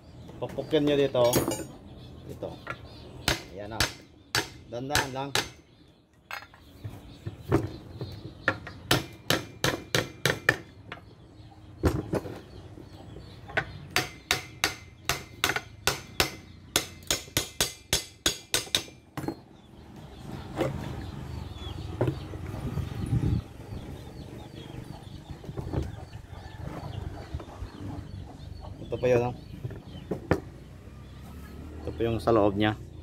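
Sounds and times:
hammer tapping on metal housing: 13.6s - 19.4s.

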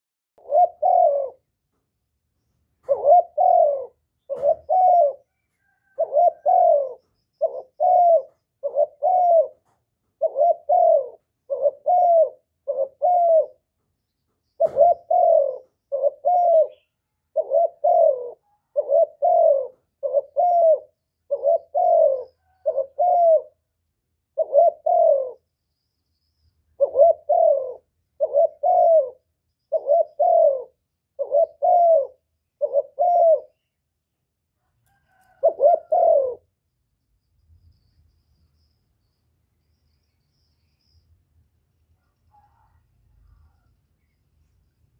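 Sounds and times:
dove cooing: 0.4s - 1.6s, 2.8s - 13.7s, 14.5s - 25.5s, 26.7s - 33.8s, 34.6s - 36.6s, 42.0s - 44.2s.

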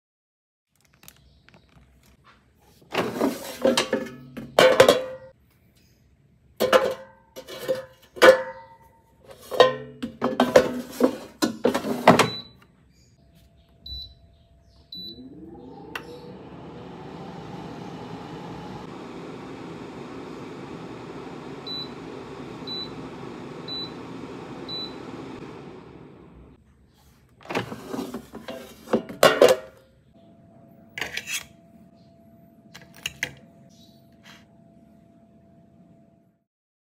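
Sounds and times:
air fryer fan whining: 2.8s - 5.4s, 6.6s - 12.6s, 13.2s - 36.4s
air fryer basket clattering: 2.9s - 5.3s, 6.6s - 12.5s, 27.4s - 29.8s.

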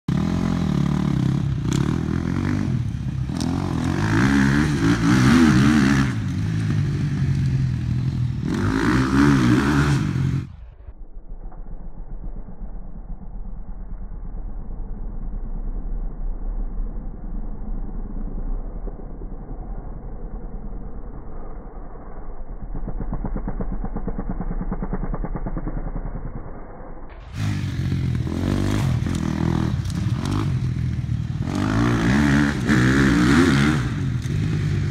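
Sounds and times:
dirt bike engine revving: 0.1s - 10.6s, 27.1s - 34.9s
muffled engine: 10.0s - 33.0s.

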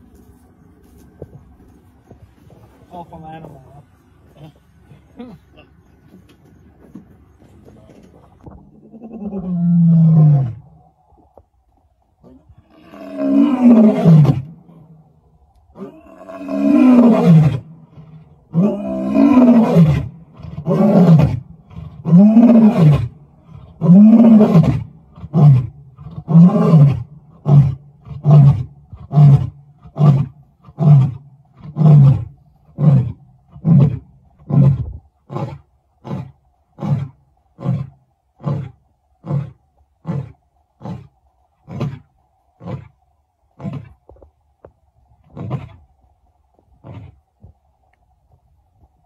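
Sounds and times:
lion roaring: 8.7s - 10.8s, 12.2s - 14.9s, 15.7s - 43.0s, 43.6s - 44.0s, 45.2s - 45.8s, 46.8s - 47.2s.

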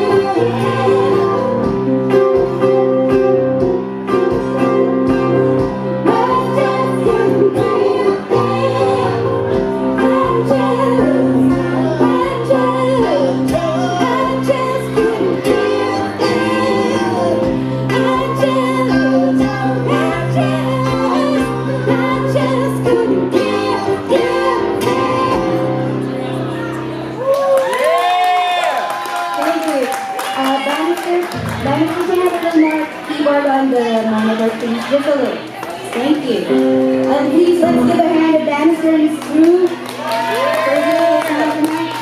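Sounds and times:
person singing: 0.0s - 2.8s, 5.9s - 26.7s, 37.6s - 38.9s
piano chords: 0.0s - 27.3s, 31.1s - 33.4s, 36.4s - 42.0s
acoustic guitar chords: 36.6s - 39.2s.

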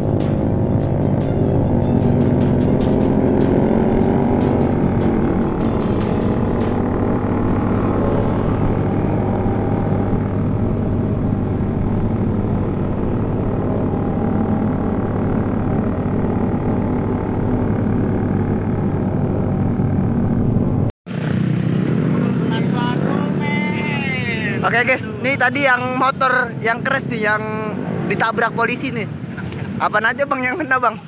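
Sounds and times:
motorcycle engine droning: 0.0s - 25.0s.

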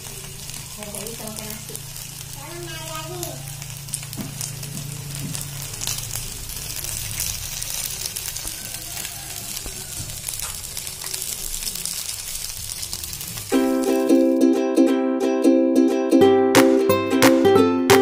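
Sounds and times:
chicken sizzling in oil: 0.0s - 14.4s.

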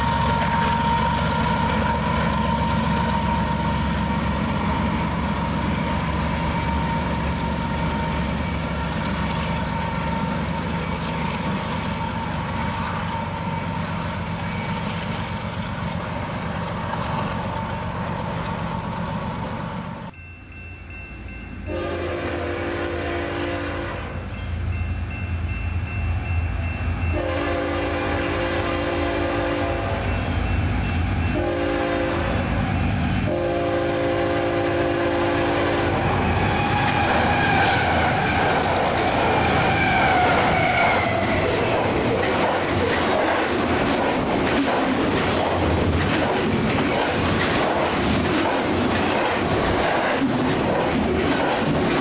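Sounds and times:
freight train rumbling past: 0.0s - 52.0s
train horn blast: 21.7s - 24.3s, 27.1s - 30.3s, 31.2s - 41.6s.

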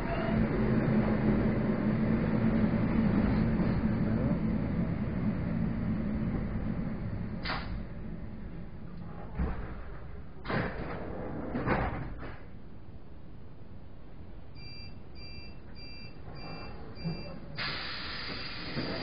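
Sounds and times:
sliding train doors closing: 0.0s - 12.6s, 16.2s - 19.0s
short electronic beeps: 14.6s - 17.4s.

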